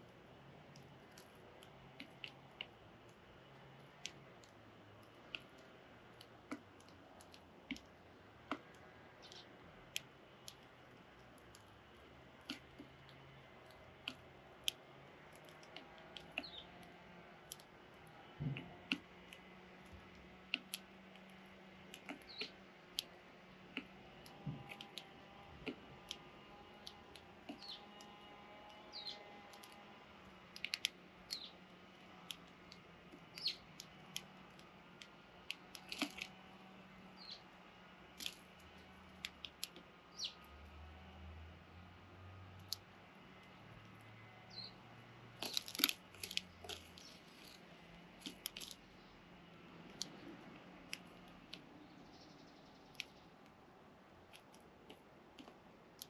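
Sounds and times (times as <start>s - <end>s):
young sparrows chirping: 9.2s - 9.5s, 16.2s - 16.7s, 22.1s - 22.6s, 27.5s - 28.1s, 28.7s - 29.7s, 30.6s - 31.6s, 33.2s - 33.8s, 37.1s - 37.5s, 40.1s - 40.4s, 44.5s - 44.8s.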